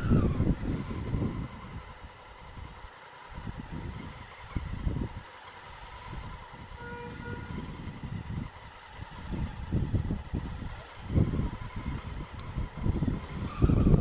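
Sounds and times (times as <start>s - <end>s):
motorcycle engine at low revs: 0.0s - 14.0s
wind rumble on microphone: 0.0s - 14.0s.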